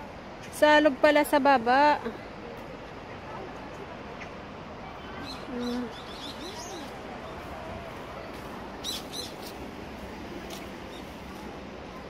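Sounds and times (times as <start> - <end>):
small birds chirping: 4.1 - 7.5, 8.1 - 9.7.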